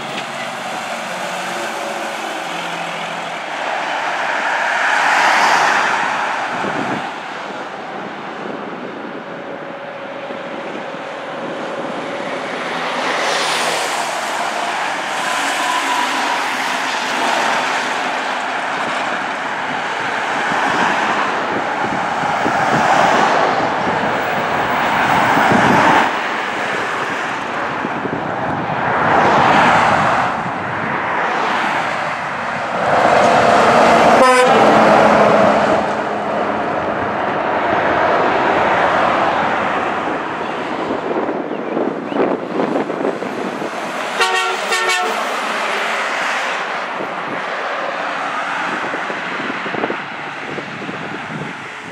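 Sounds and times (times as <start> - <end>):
cars and trucks passing: 0.0 - 51.9.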